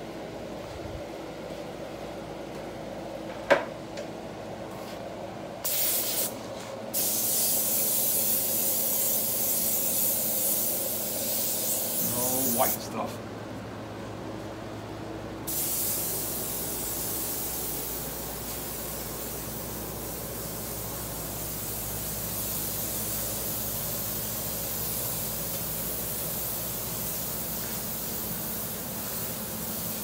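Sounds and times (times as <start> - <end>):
steady low hum: 0.0 - 30.0
airbrush spraying hiss: 5.6 - 12.9, 15.5 - 30.0.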